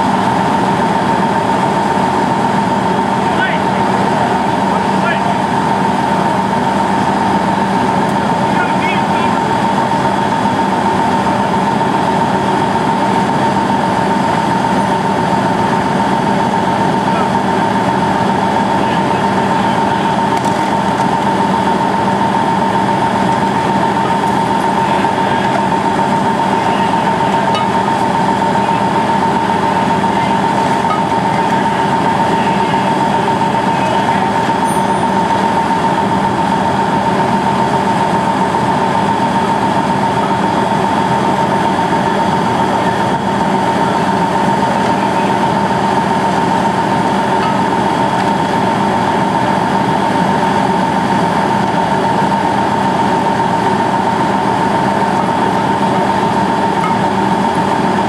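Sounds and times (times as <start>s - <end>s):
heavy engine droning: 0.0s - 58.0s.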